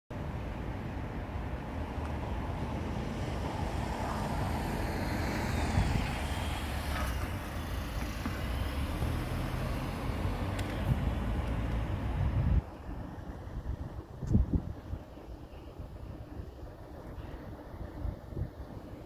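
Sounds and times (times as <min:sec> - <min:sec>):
low rumble of road traffic: 0:00.1 - 0:19.0
car driving past: 0:03.0 - 0:12.2.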